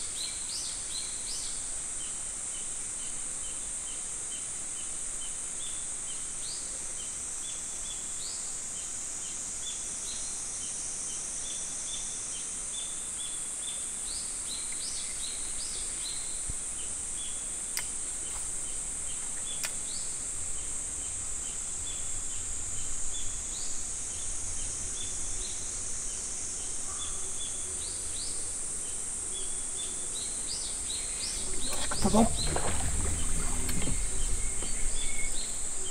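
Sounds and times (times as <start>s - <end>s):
birds chirping: 29.8s - 35.9s.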